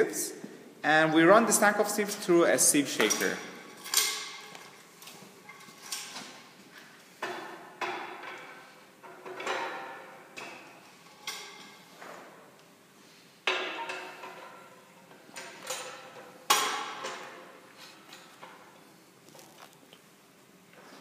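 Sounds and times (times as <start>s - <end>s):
metal knocks and clanks: 7.2s - 11.7s.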